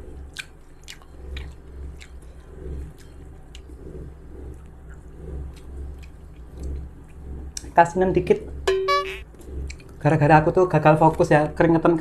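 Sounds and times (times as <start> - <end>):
person chewing: 0.2 - 7.7.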